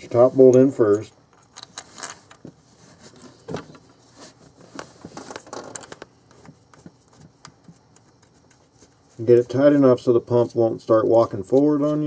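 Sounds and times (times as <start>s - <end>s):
small handling noises: 0.0s - 12.0s
bolt threading clicks and scrapes: 0.9s - 2.5s.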